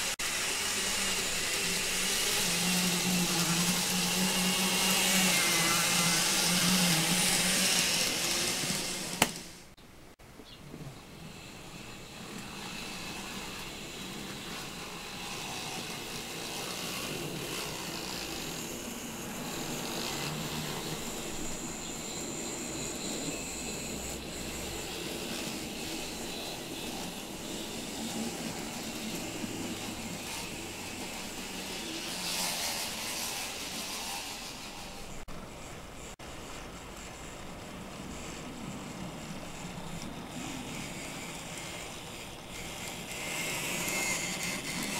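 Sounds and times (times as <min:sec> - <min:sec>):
model train motor hum: 0:00.0 - 0:09.8, 0:10.9 - 0:44.9
thin high whine: 0:10.8 - 0:44.9.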